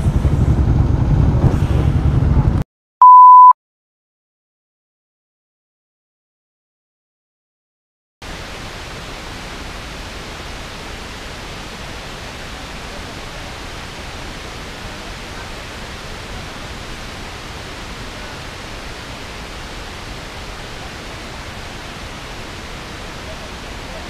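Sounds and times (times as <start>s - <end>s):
wind rushing on microphone: 0.0s - 2.6s.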